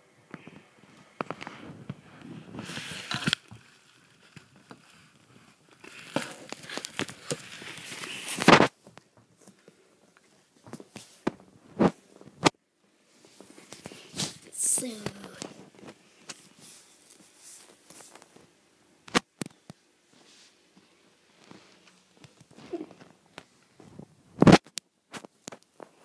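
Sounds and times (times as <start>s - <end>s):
phone handling rustle: 2.7s - 5.1s, 5.8s - 11.5s.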